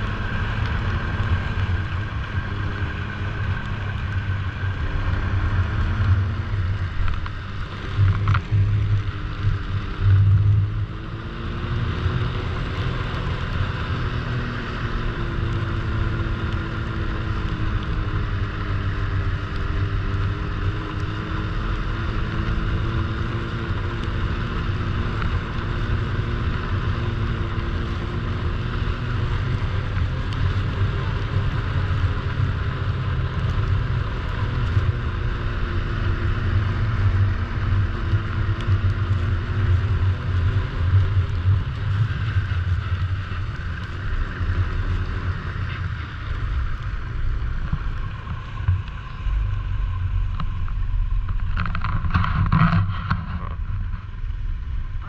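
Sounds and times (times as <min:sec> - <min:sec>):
snowmobile engine running: 0:00.0 - 0:54.2
low rumble: 0:39.8 - 0:55.0.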